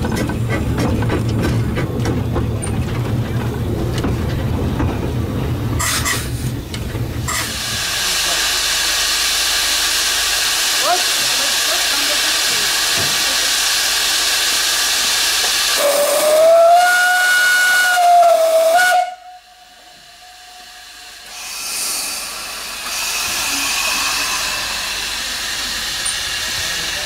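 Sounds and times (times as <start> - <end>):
steam locomotive hissing: 5.1 - 27.0
steam whistle: 15.8 - 20.7.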